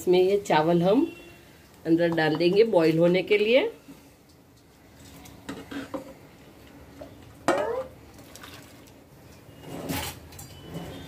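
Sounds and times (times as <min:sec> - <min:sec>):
metal pot knocking and scraping: 0:07.0 - 0:08.0.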